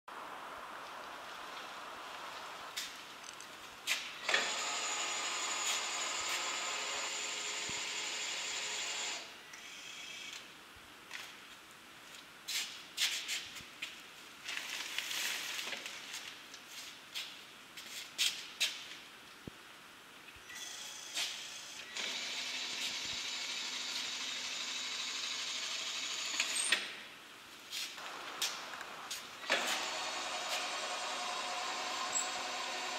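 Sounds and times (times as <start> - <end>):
lift motor running: 4.2 - 9.7, 20.6 - 26.6, 28.0 - 32.9.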